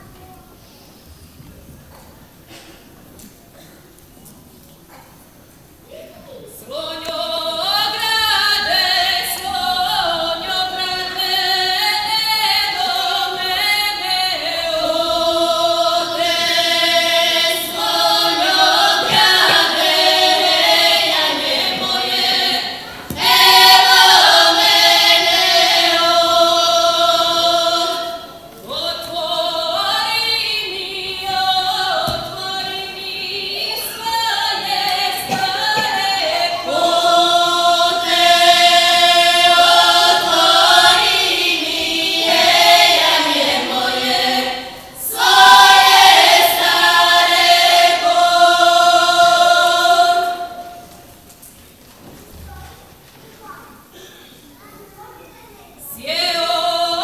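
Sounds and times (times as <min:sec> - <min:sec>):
women singing a cappella: 0:06.5 - 0:51.1, 0:55.8 - 0:57.0.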